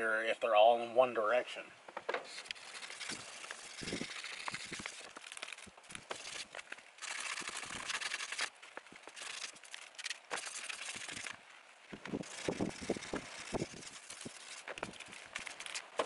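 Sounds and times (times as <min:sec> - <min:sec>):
wet sandpaper on plastic: 0:02.2 - 0:08.5, 0:09.1 - 0:11.4, 0:12.1 - 0:16.0.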